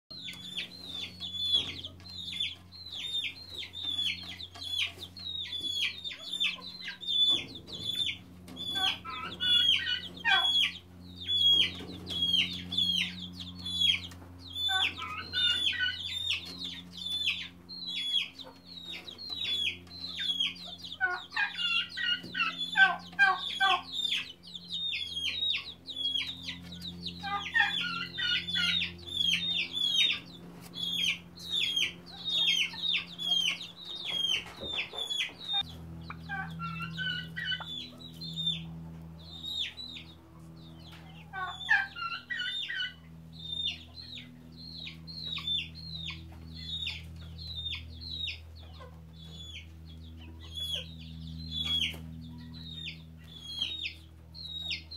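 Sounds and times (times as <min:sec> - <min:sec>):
chicks peeping: 0:00.1 - 0:54.9
faint low hum: 0:00.1 - 0:54.9.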